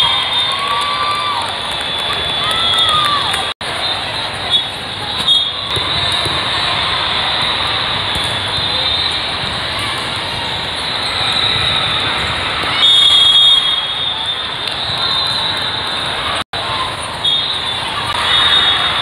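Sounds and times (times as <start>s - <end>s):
indoor crowd din: 0.0s - 19.0s
shrill high whistle: 12.8s - 15.8s.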